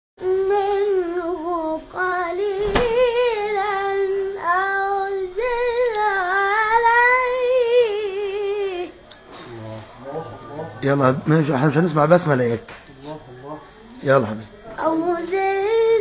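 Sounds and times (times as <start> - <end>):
boy chanting melodic recitation: 0.2 - 9.1, 13.0 - 16.0.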